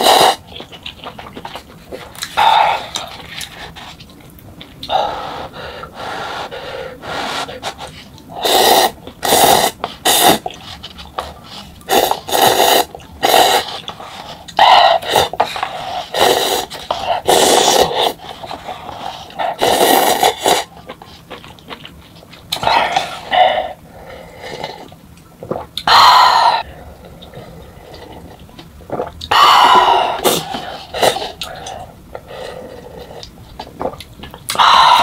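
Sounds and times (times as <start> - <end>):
person slurping noodles: 0.0 - 0.4, 5.1 - 14.3, 14.9 - 20.7, 27.5 - 34.0.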